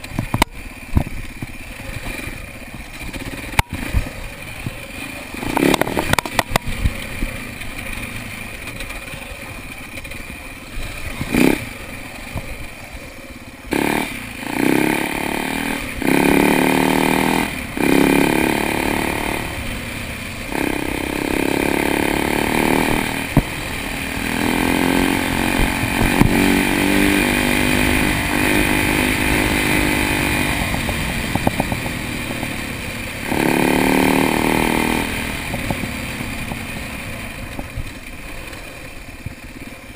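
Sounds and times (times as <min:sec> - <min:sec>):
dirt bike engine revving: 0:00.0 - 0:39.6.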